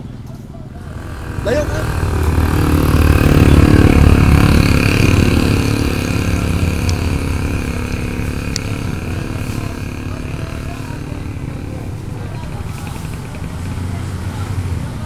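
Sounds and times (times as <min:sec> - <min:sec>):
vehicle engine passing: 0:00.8 - 0:15.0.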